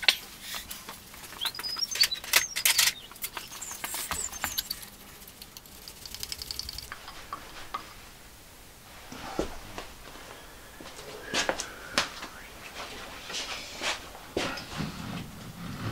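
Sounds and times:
screws clicking and scraping: 0.0 - 7.1
short high squeaks: 1.2 - 5.0
quick light ticks: 1.2 - 7.2.

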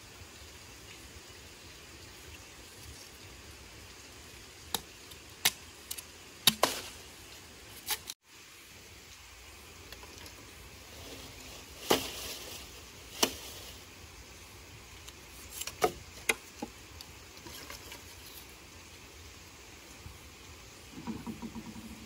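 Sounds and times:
hard objects knocking: 20.9 - 22.0.

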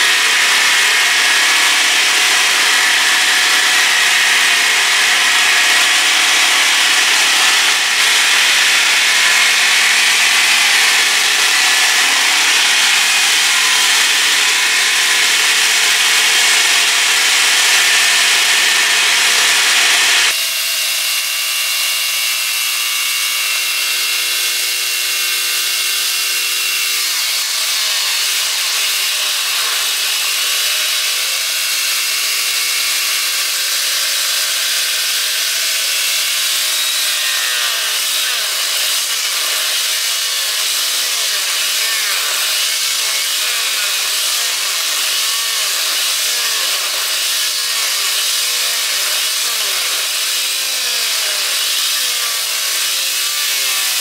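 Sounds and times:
small engine running hard: 0.0 - 21.2.

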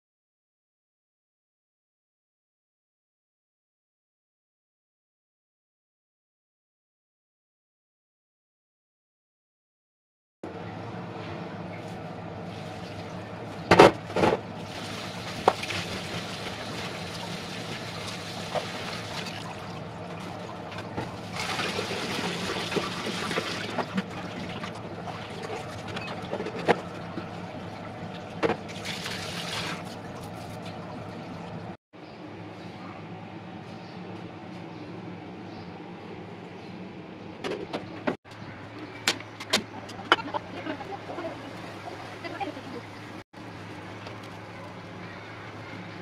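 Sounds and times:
water splashing into a steel sink: 28.6 - 30.2.

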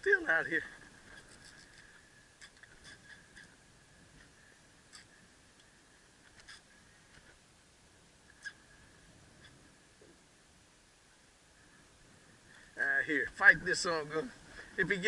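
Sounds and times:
faint high hum: 0.0 - 15.0
faint clicks: 1.0 - 3.6, 4.2 - 7.4.

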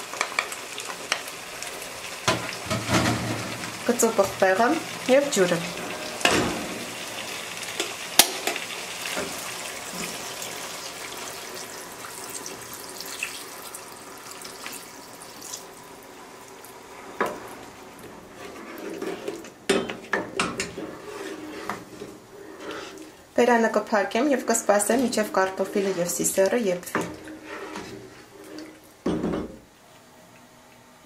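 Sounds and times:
water pouring into a pot: 9.6 - 15.8.

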